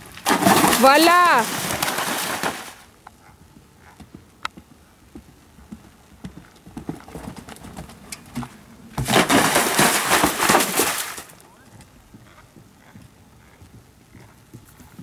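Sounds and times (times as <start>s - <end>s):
horse splashing through water: 0.1s - 2.8s, 9.0s - 11.4s
hoofbeats on turf: 3.2s - 10.7s, 11.5s - 15.0s.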